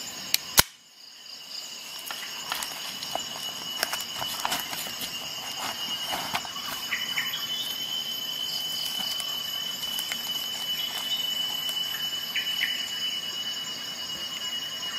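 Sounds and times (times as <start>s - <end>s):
steady high-pitched whine: 0.0s - 14.9s
multi-tool sheath clicks: 0.3s - 0.8s
light handling noise: 2.0s - 7.7s.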